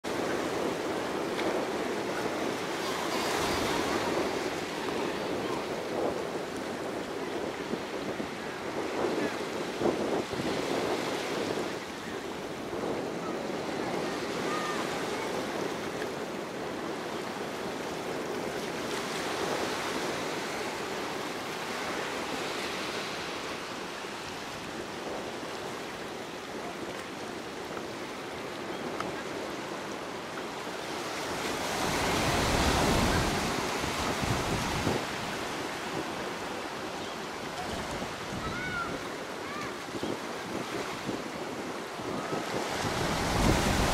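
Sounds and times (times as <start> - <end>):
waves breaking on rocky beach: 0.0 - 15.9, 29.2 - 43.9
wind buffeting microphone: 0.0 - 43.9.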